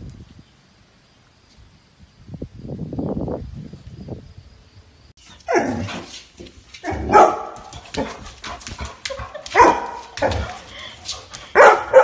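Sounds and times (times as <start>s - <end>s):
dog barking: 5.4s - 6.1s, 6.8s - 10.7s, 11.4s - 12.0s.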